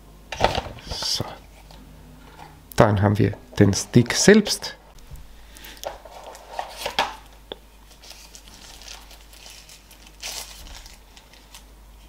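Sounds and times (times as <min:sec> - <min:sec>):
packaging crinkling and rustling: 0:05.8 - 0:11.7.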